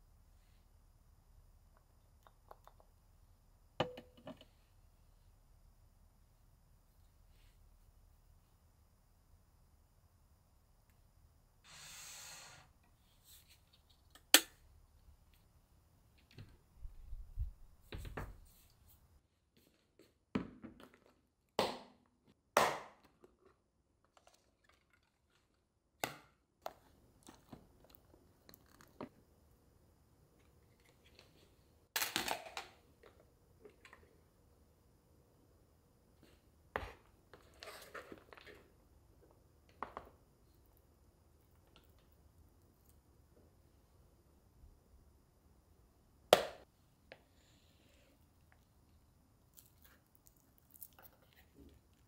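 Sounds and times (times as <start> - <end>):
brief hiss: 11.6 - 12.8.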